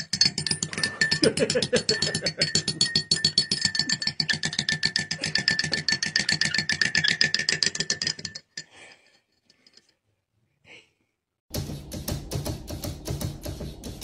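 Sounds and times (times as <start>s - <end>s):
teaspoon clinking against mug: 0.0s - 8.7s.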